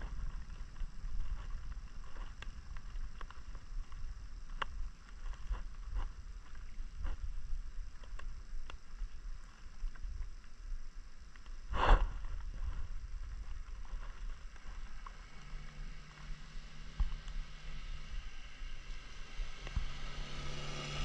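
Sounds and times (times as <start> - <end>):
motorbike engine hum: 0.0 - 7.2, 12.6 - 21.0
road and wind rumble: 0.0 - 21.0.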